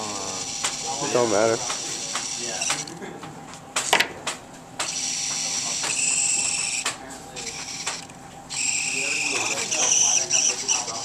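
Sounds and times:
robot motors whirring: 0:00.0 - 0:02.9, 0:04.8 - 0:11.0
sharp clicks and clacks: 0:07.6 - 0:08.1.

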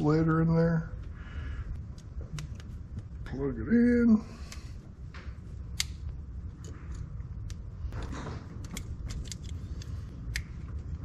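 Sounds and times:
low background rumble: 0:00.0 - 0:11.0
connector clicks and rattles: 0:01.9 - 0:03.0, 0:05.7 - 0:11.0.

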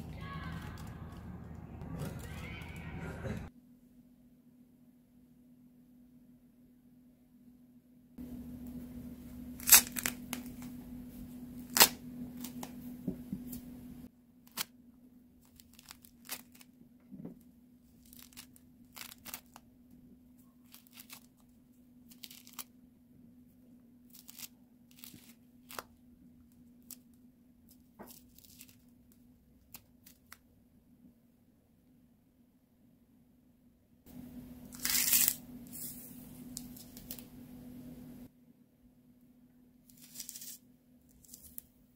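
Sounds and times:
citrus rind tearing and snapping: 0:09.6 - 0:10.7, 0:11.6 - 0:12.7, 0:15.5 - 0:16.7, 0:18.0 - 0:19.6.

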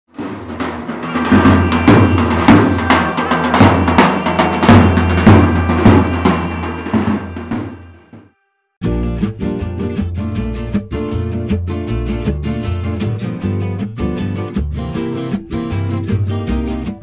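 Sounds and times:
theme music with drum beat: 0:00.1 - 0:08.2.

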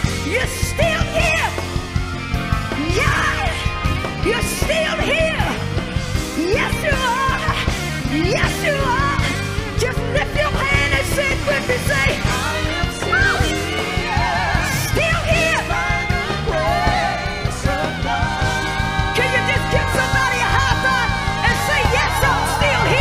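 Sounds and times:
bass guitar: 0:00.0 - 0:23.0
drums: 0:00.0 - 0:23.0
woman singing into a microphone: 0:06.4 - 0:23.0.

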